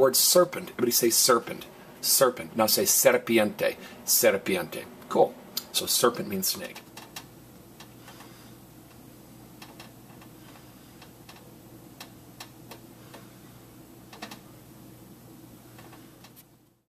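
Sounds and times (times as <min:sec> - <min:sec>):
steady low hum: 0:00.0 - 0:16.9.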